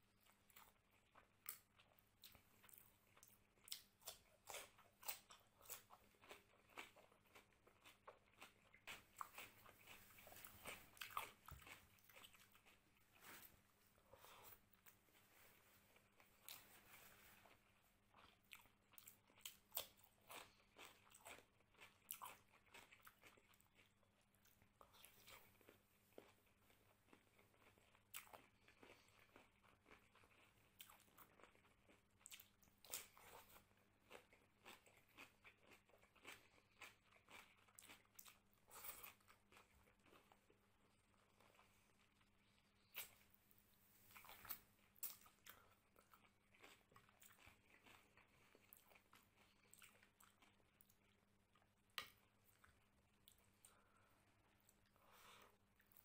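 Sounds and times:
chewing with wet mouth clicks: 0.2s - 12.9s, 18.1s - 40.5s, 44.1s - 56.0s.

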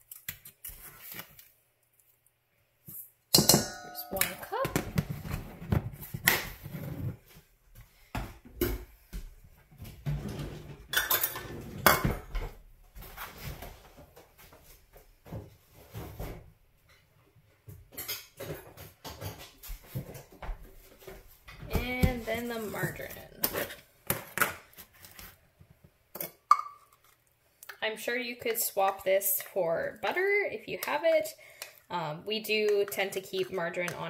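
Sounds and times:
dishes and utensils clinking: 3.3s - 4.8s, 10.9s - 12.4s.

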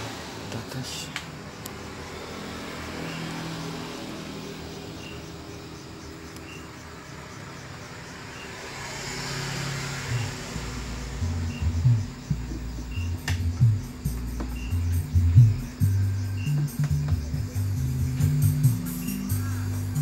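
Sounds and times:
heavy bass beats: 10.1s - 20.0s
music through speaker: 11.6s - 20.0s.

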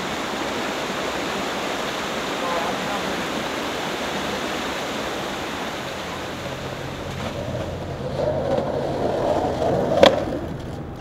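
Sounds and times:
skateboard wheels rolling on concrete: 0.0s - 11.0s
traffic noise: 0.0s - 11.0s
skateboard clack: 8.0s - 11.0s.

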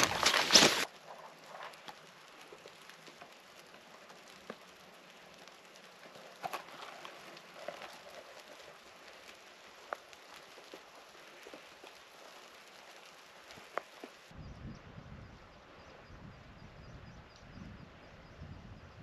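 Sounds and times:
soft ticks and patters: 0.0s - 14.4s.

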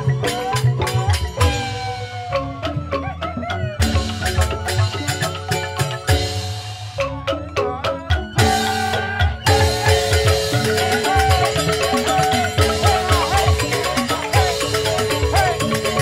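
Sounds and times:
bamboo xylophones struck with mallets: 0.0s - 16.0s
drum strokes: 3.8s - 16.0s.

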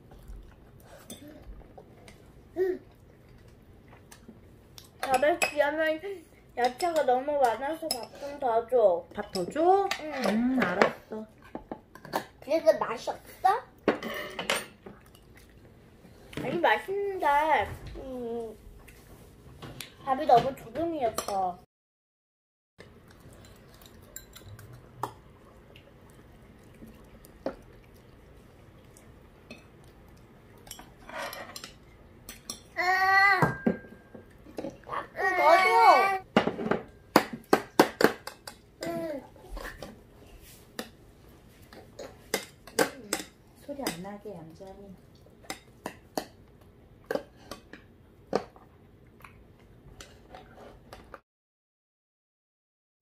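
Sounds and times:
metal spoons clinking on bowls: 23.4s - 24.8s.

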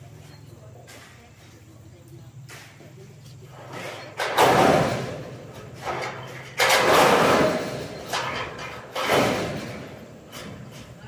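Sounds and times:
steel roofing sheets clattering: 2.5s - 11.0s.

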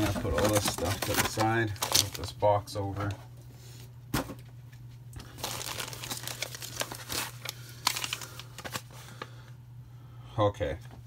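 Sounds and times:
packaging crinkling and rustling: 0.0s - 3.2s, 5.2s - 9.4s.

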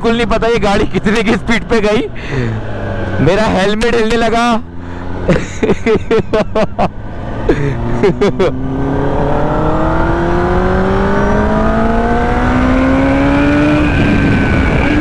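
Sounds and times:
motorcycle engine accelerating: 4.4s - 15.0s
wind noise: 8.8s - 15.0s.

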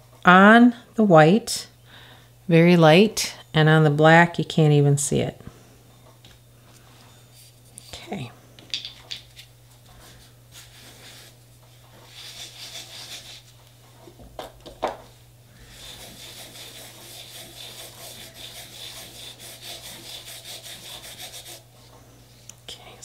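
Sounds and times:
cotton pad rubbing metal plate: 15.6s - 21.7s.

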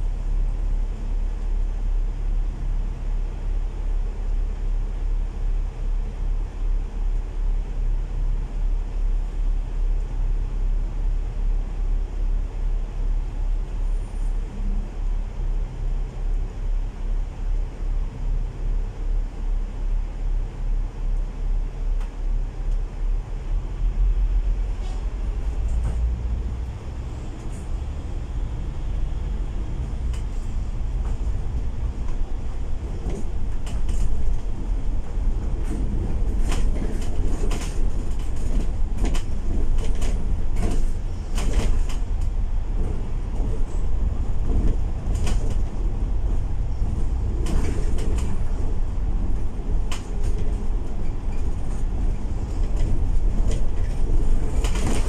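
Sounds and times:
bus diesel engine rumble: 0.0s - 55.0s
bodywork rattles and clicks: 32.9s - 43.7s, 44.4s - 45.8s, 46.8s - 55.0s.

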